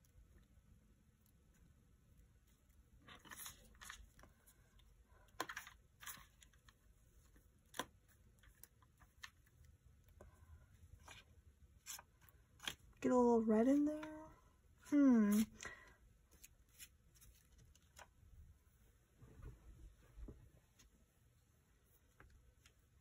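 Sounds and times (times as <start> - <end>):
paper sticker sheet rustling: 3.0 - 4.4, 16.3 - 18.2.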